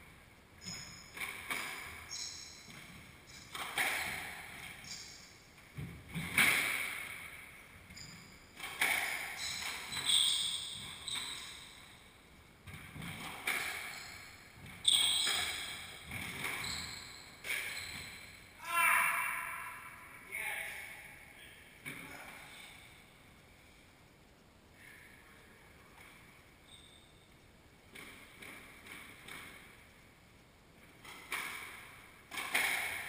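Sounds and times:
sneakers squeaking on hardwood: 0.6 - 6.5, 7.8 - 12.0, 12.6 - 18.4, 26.6 - 27.1
squash ball cracking off racquets: 3.5 - 4.8, 8.6 - 10.0, 31.0 - 33.0.

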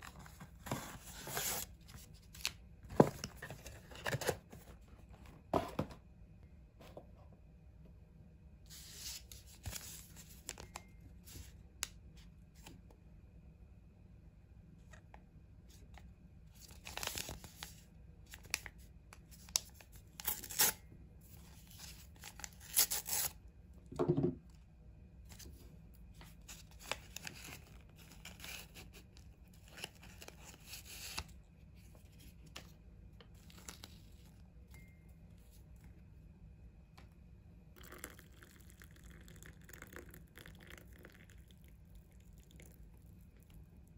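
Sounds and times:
paper crinkling and rustling: 25.3 - 32.7.

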